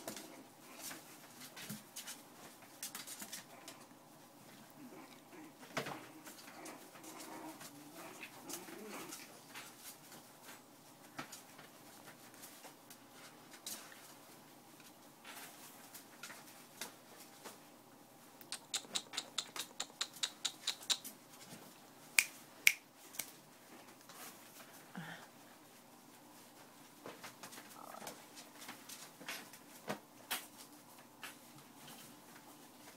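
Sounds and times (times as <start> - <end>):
rapid sharp ticks: 18.4 - 21.1
small clicks and scratches: 18.4 - 21.6.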